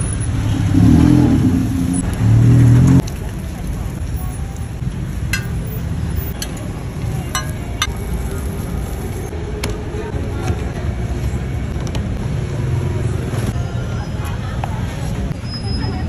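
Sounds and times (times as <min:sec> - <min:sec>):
street traffic rumble: 0:00.0 - 0:16.0
metal spatula tapping a griddle: 0:05.3 - 0:05.7, 0:07.4 - 0:07.9.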